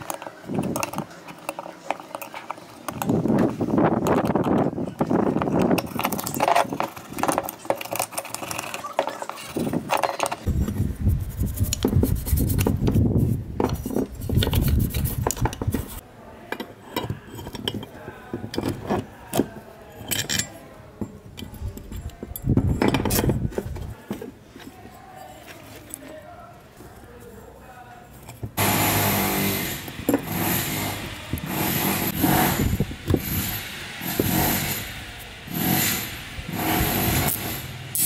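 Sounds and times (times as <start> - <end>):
metal parts clinking: 0.0 - 10.8, 13.7 - 23.9
screwdriver scraping metal: 0.0 - 26.2, 28.1 - 38.0
toothbrush scrubbing metal: 13.8 - 16.0.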